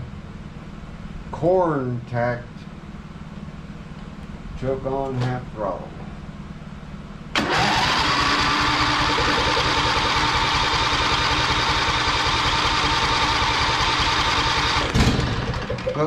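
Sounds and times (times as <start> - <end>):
small engine starting and running: 7.3 - 16.0.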